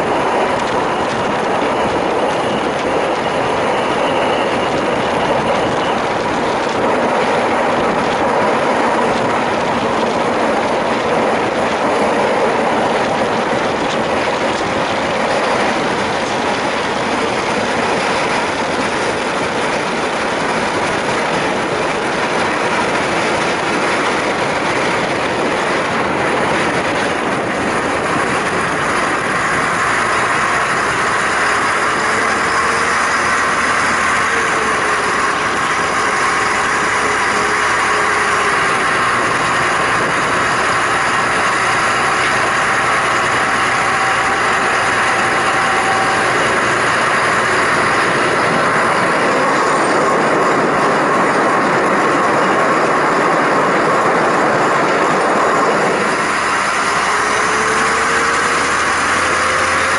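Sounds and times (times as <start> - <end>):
faint high whine: 0.0 - 20.8
train wheel and rail noise: 0.0 - 59.9.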